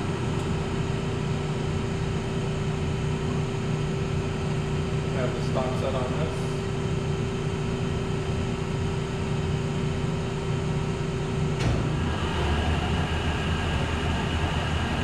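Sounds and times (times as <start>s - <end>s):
lathe running: 11.7s - 15.0s.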